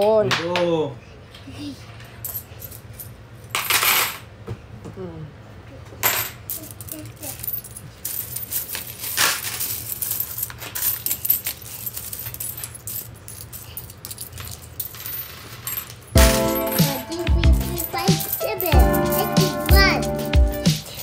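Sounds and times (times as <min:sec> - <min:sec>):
coins clinking into metal trays: 0:02.2 - 0:04.3, 0:06.0 - 0:21.0
background music: 0:16.2 - 0:21.0.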